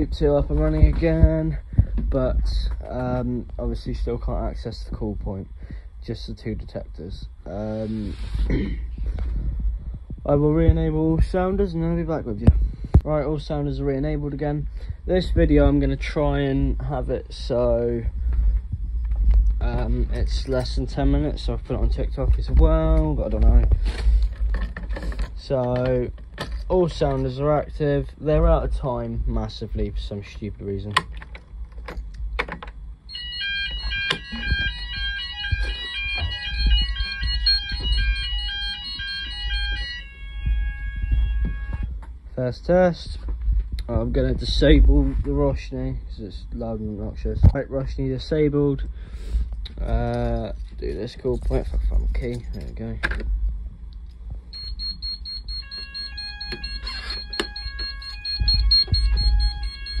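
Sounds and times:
fire alarm sounders: 0:33.0 - 0:42.0, 0:54.5 - 1:00.0
rapid pulsing high alarm beep: 0:33.1 - 0:41.9, 0:54.5 - 1:00.0.

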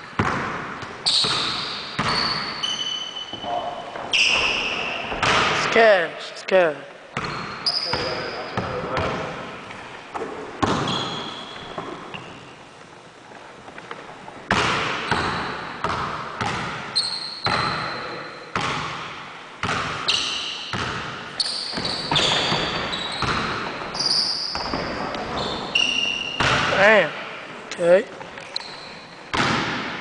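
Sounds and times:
basketball bouncing on wooden floor: 0:00.1 - 0:02.5, 0:14.5 - 0:17.9, 0:18.6 - 0:20.0, 0:20.7 - 0:23.9, 0:24.5 - 0:25.6, 0:29.3 - 0:30.0
sneaker squeaks: 0:01.0 - 0:05.4, 0:07.1 - 0:09.3, 0:10.2 - 0:12.7, 0:15.0 - 0:15.8, 0:16.4 - 0:18.7, 0:19.7 - 0:26.9, 0:28.2 - 0:29.4.

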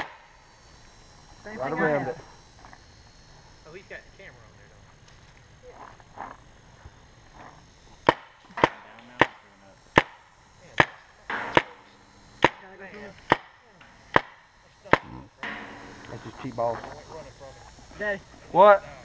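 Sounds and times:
paintball marker firing pops: 0:08.0 - 0:10.2, 0:12.4 - 0:12.6, 0:13.2 - 0:16.1.

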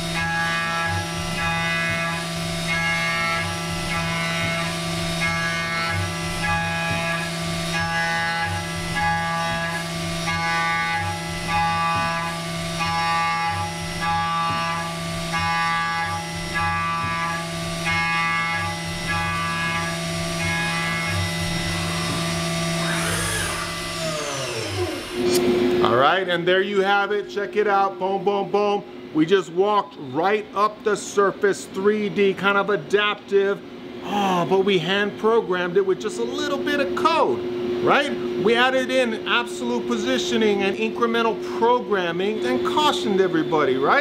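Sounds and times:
milling cutter cutting tone: 0:00.0 - 0:25.8, 0:37.8 - 0:44.0
milling machine spindle hum: 0:00.0 - 0:25.9, 0:27.8 - 0:44.0.

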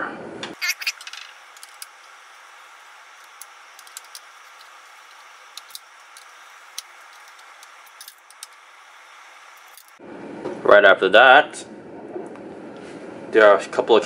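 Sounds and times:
low hiss: 0:00.6 - 0:10.0.

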